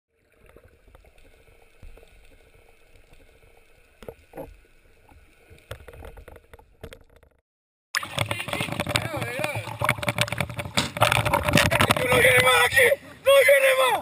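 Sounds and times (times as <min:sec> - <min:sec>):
clicks and knocks underwater: 0:00.3 - 0:07.4, 0:08.0 - 0:12.9.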